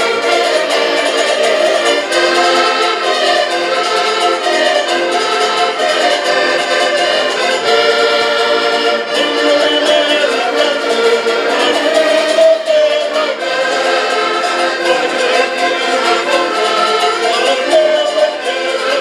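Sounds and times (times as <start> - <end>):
accordions playing folk tune: 0.0 - 19.0.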